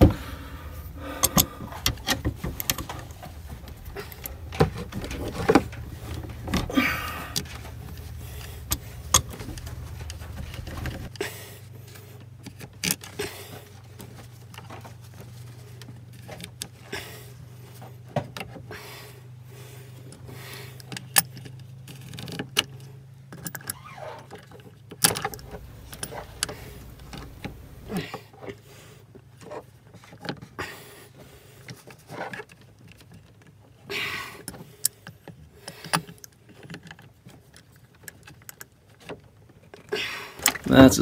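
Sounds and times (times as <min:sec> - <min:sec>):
low hum: 0:00.0 - 0:12.2, 0:25.2 - 0:28.0
steering cable ratcheting: 0:00.8 - 0:11.1, 0:23.4 - 0:28.0.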